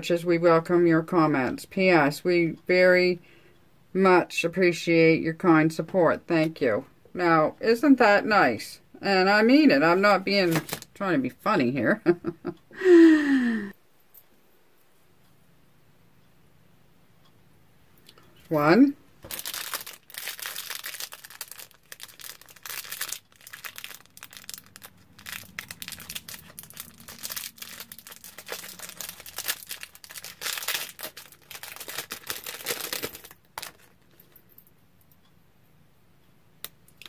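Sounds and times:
plastic bag crinkling: 0:09.9 - 0:11.0, 0:19.2 - 0:34.5.

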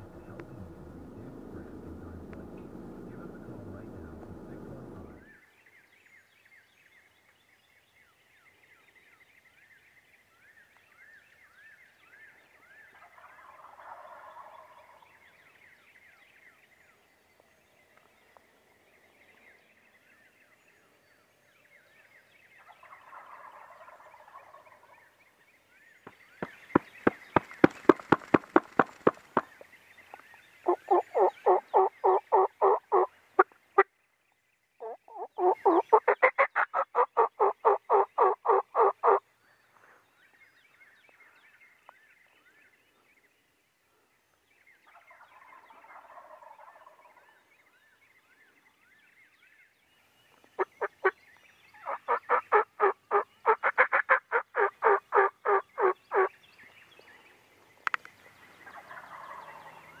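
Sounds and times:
wild turkey gobbling: 0:12.8 - 0:15.2, 0:22.6 - 0:25.2, 0:26.4 - 0:33.9, 0:34.8 - 0:39.2, 0:44.9 - 0:47.4, 0:50.6 - 0:56.4, 0:58.6 - 1:00.0.

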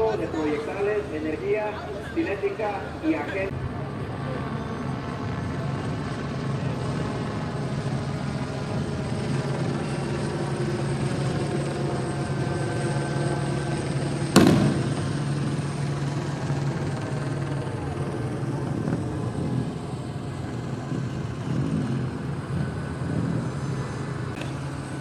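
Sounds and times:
low engine drone: 0:00.0 - 0:25.0
sharp loud bang: 0:14.4 - 0:15.1.

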